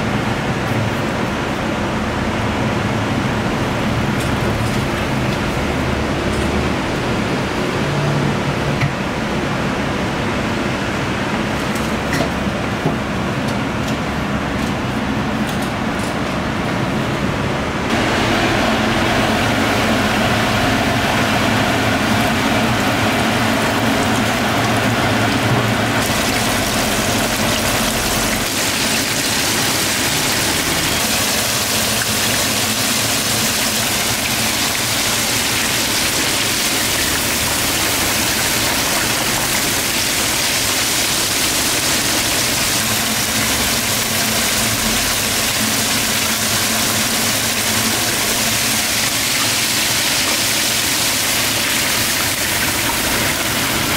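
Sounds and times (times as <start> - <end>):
squid deep-frying in oil: 19.8 - 53.9.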